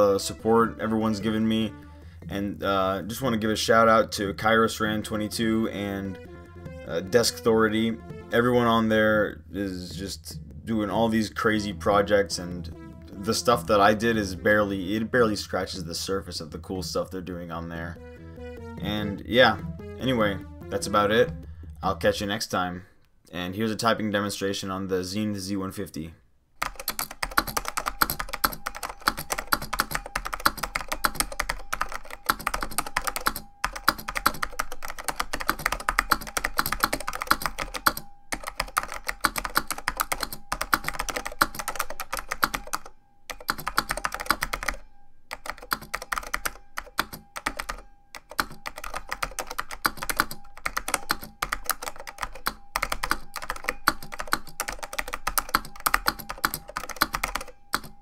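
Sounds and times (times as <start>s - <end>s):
keyboard typing clicks: 26.6s - 58.0s.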